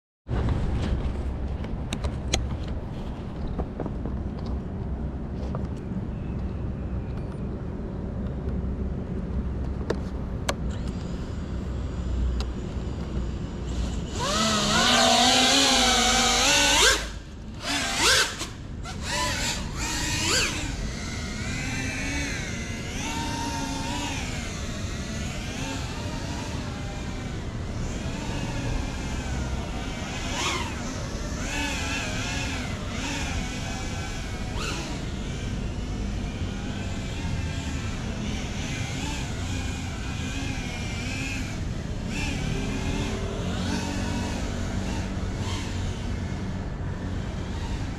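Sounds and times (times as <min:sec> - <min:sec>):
quadcopter motors whining: 0:10.4 - 0:47.9.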